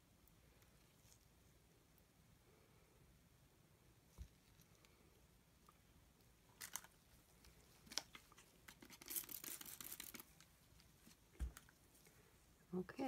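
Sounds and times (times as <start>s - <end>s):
small clicks and crackles: 4.1s - 12.2s.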